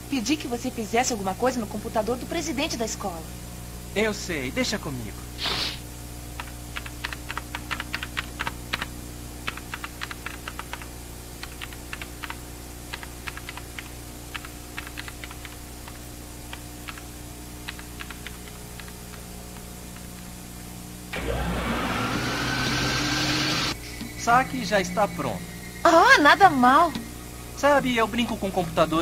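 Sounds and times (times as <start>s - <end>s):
steady low hum: 0.0s - 29.0s
typing on computer keyboard: 6.4s - 17.0s, 17.7s - 18.9s.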